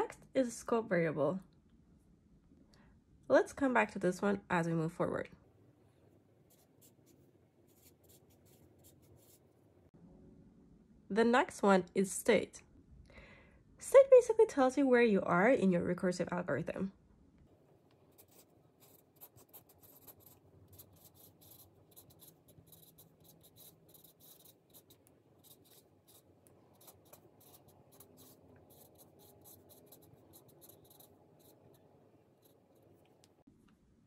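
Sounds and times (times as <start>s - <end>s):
marker scratching and squeaking: 6.5s - 9.4s, 18.2s - 33.2s.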